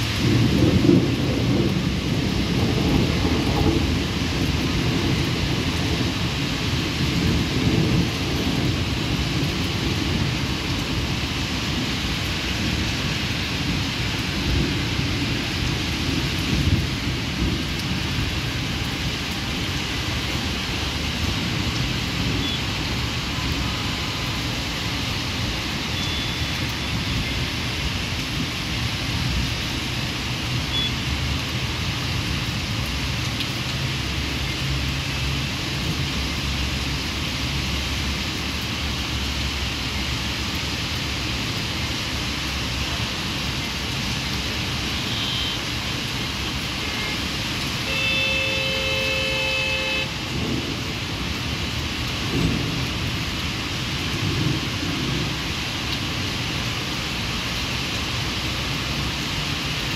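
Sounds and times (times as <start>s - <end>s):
heavy rain falling: 0.0s - 59.9s
rolling thunder: 0.1s - 11.1s, 50.2s - 51.1s, 52.2s - 55.4s.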